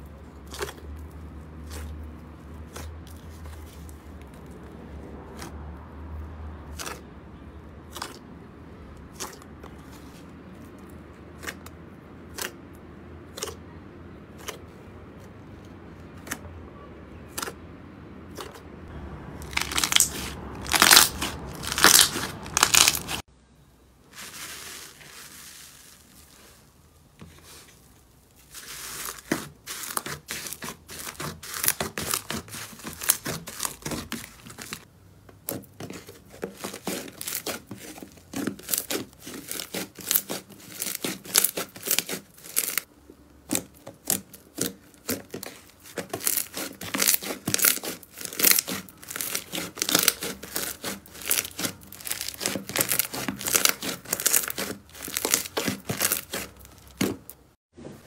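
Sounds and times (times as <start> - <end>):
slime crackling and popping: 19.4 - 23.3, 36.0 - 57.4.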